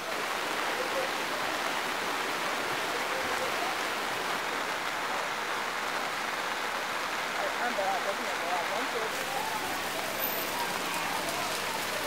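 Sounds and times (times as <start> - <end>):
heavy rain on streets and roofs: 0.0 - 12.0.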